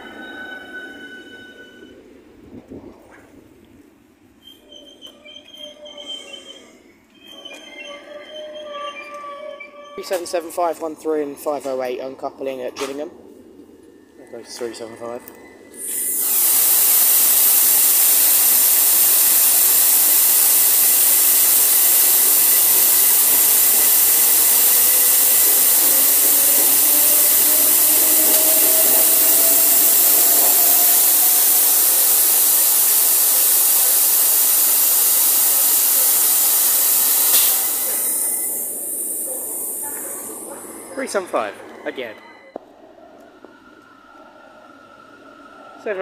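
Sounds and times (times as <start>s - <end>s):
compressed air hissing: 15.8s - 40.8s
faint rising whine: 17.8s - 35.6s.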